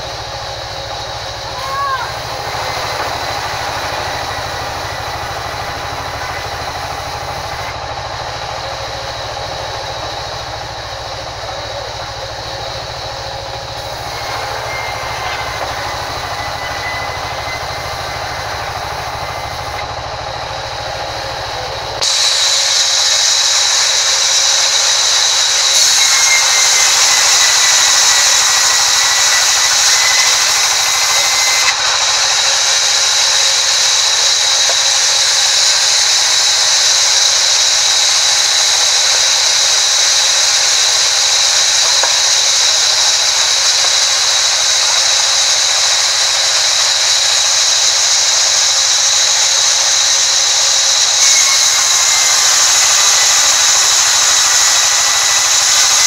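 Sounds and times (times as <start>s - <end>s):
band saw blade whining: 0.0s - 56.0s
hiss of saw cutting wood: 0.0s - 56.0s.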